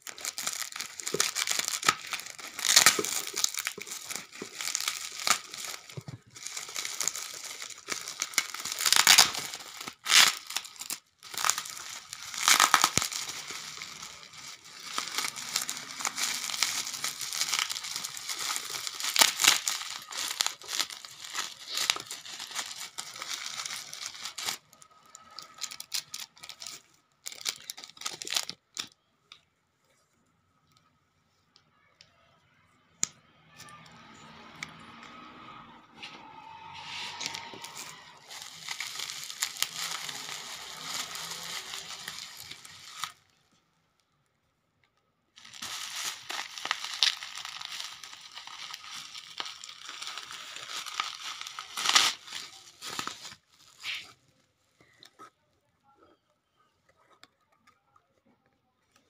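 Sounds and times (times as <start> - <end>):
bubble wrap crinkling and tearing: 0.0 - 29.0, 33.6 - 43.4, 45.3 - 55.2.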